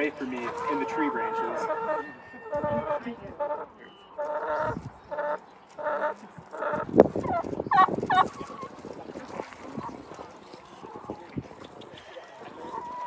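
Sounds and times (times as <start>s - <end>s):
turkeys calling: 0.0s - 8.7s
turkey gobble: 0.1s - 8.7s, 11.7s - 13.0s.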